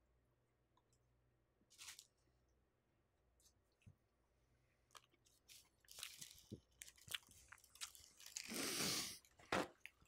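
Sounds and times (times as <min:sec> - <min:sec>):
small clicks from handling wrappers: 0:04.9 - 0:08.5
crunchy bites and chewing: 0:04.9 - 0:10.0.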